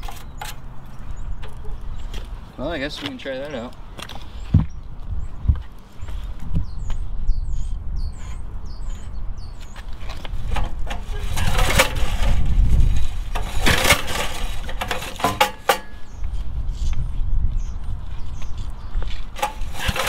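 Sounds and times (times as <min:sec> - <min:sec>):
bird chirping: 0:00.0 - 0:10.5, 0:15.9 - 0:19.3.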